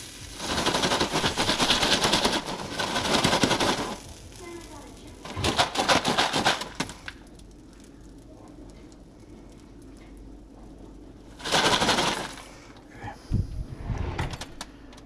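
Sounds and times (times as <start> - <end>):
popcorn pan scraping rattle: 0.0 - 4.0, 5.2 - 7.0, 11.3 - 12.6.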